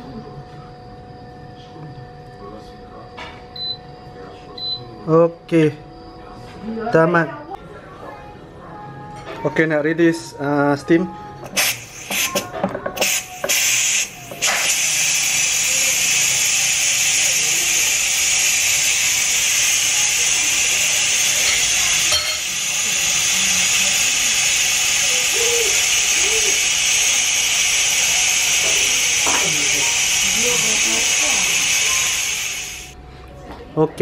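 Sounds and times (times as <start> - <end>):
loud hiss of escaping steam: 11.5 - 12.4, 13.0 - 33.0.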